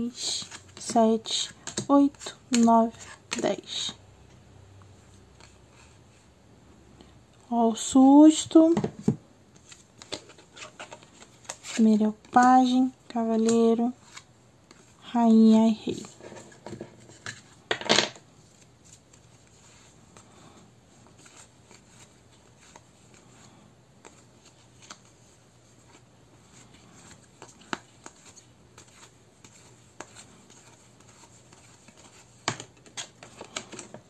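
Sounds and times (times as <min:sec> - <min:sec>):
cards scraping and tapping: 0:00.2 - 0:04.0, 0:09.6 - 0:12.4, 0:16.0 - 0:17.8, 0:26.6 - 0:34.0.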